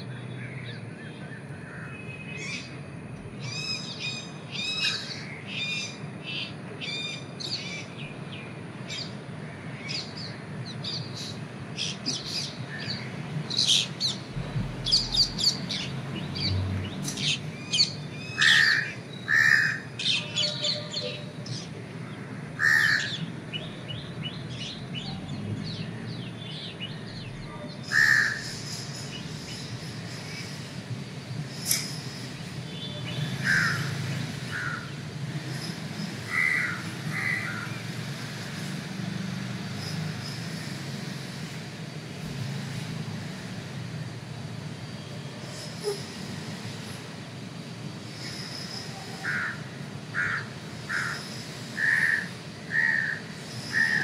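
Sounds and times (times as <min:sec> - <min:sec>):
steady background hum: 0:01.0 - 0:54.0
birds chirping: 0:03.4 - 0:38.1.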